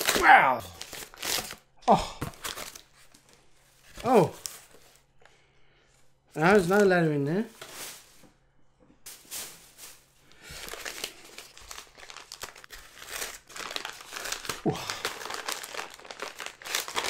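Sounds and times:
paper wrapping crinkling: 0:00.0 - 0:05.1, 0:09.1 - 0:17.0.

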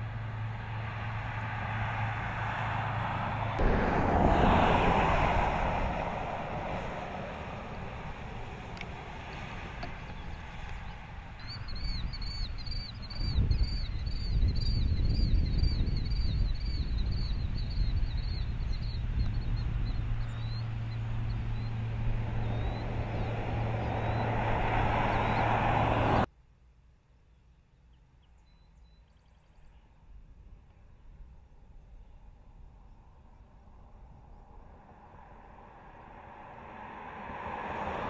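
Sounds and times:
car driving by: 0:00.0 - 0:12.4, 0:18.8 - 0:26.3, 0:33.9 - 0:38.0
bird chirping rapidly: 0:10.1 - 0:25.7.

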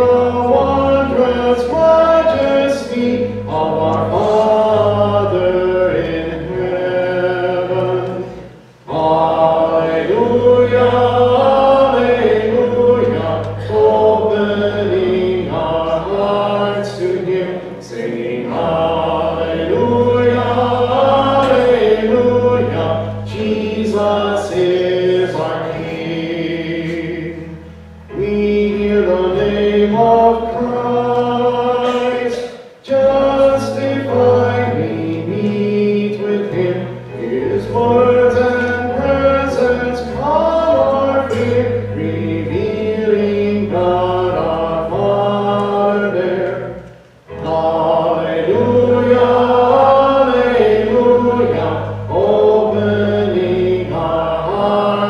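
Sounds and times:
choir singing a hymn: 0:00.0 - 0:55.0.

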